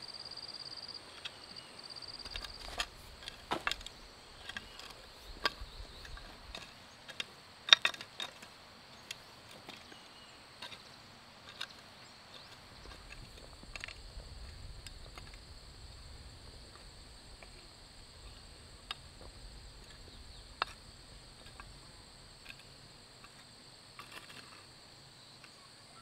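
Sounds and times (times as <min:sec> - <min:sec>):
sharp clicks and knocks: 0:02.2 - 0:08.5.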